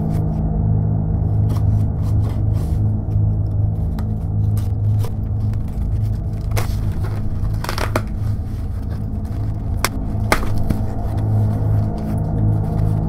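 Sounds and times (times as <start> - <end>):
background music: 0.0 - 13.0
cardboard box tearing: 4.5 - 11.7.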